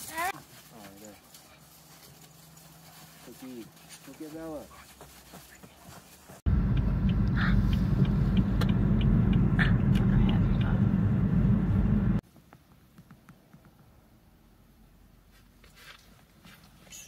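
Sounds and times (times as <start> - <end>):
car cabin road noise: 6.5 - 12.9.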